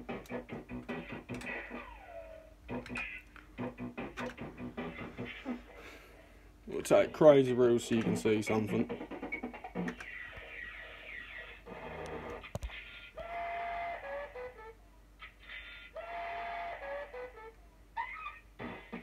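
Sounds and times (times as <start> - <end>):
beeping tones and ticks: 2.7 - 5.3.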